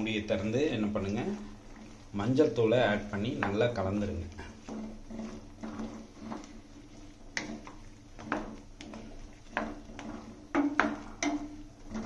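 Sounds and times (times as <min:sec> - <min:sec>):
spoon knocking against pan: 0:10.5 - 0:11.7.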